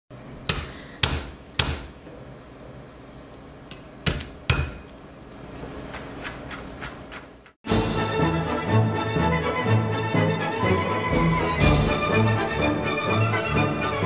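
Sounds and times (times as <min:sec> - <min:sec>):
knife chopping on wooden board: 0:00.5 - 0:01.9.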